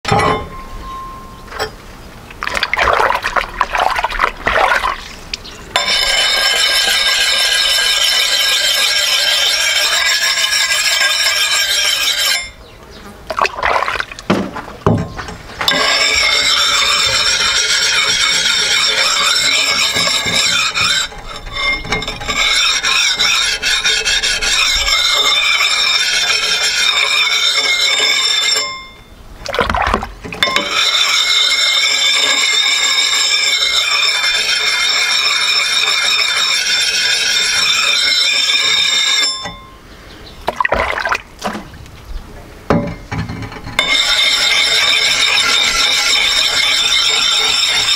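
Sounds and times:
high ringing of steel: 0.0 - 1.8, 5.7 - 12.7, 15.7 - 29.2, 30.4 - 39.9, 43.8 - 47.9
whetstone scraping axe blade: 5.8 - 12.6, 15.7 - 28.7, 30.4 - 39.4, 43.8 - 47.9.

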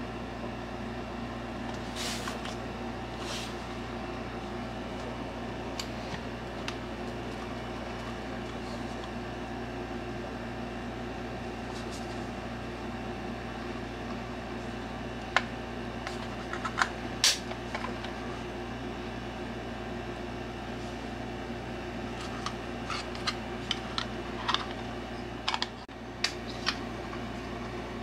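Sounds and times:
fan-like hum: 0.0 - 28.0.

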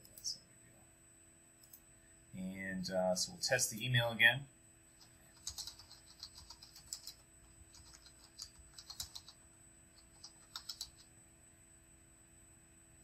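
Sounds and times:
computer keyboard typing: 4.9 - 11.1.

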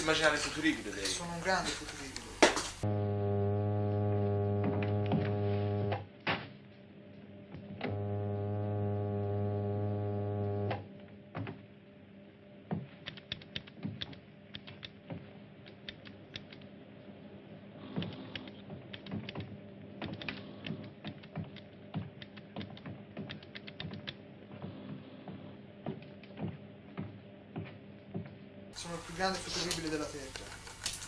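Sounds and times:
steady machine hum: 0.0 - 12.9
loud electronic buzz: 2.8 - 6.1, 7.8 - 10.9
console clicking and ticking: 13.0 - 16.7, 17.9 - 24.2.

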